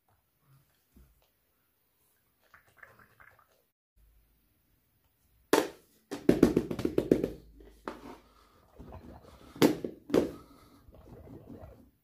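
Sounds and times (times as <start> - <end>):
sharp knocks on toys: 5.5 - 7.4.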